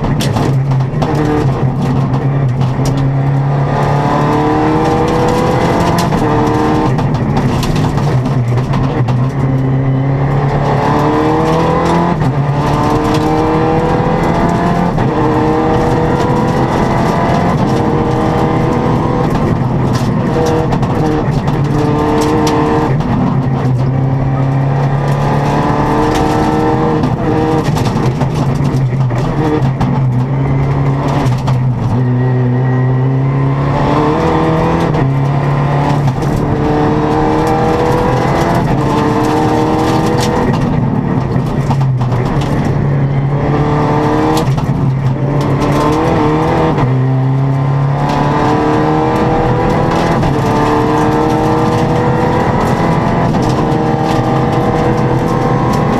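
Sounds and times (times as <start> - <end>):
car engine revving: 0.0 - 55.9.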